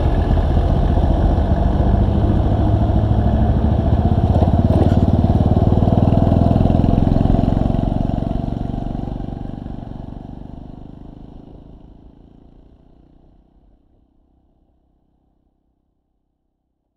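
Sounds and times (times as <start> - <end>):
motorcycle engine running: 0.0 - 13.5.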